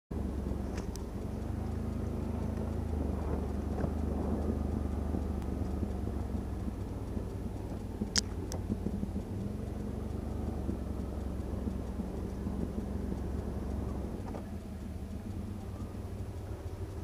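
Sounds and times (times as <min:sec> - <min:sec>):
quad bike engine rumbling: 0:00.1 - 0:17.0
sharp clicks: 0:00.1 - 0:17.0.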